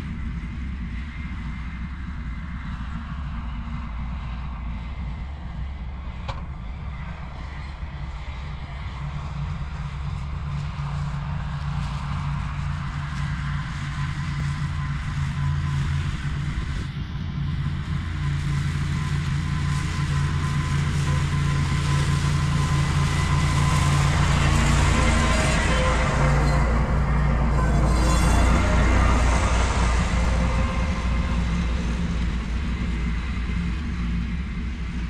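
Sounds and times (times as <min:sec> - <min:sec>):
tractor engine drone: 0:00.0 - 0:35.0
mower cutting grass: 0:18.0 - 0:33.9.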